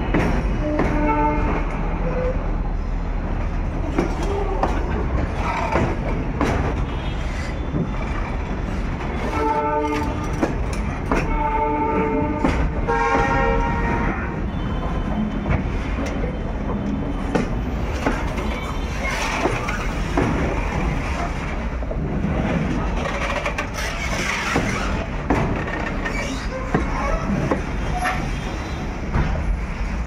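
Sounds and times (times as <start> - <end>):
freight train wagons rolling past: 0.0 - 30.0
wheels clicking and knocking: 21.9 - 28.4.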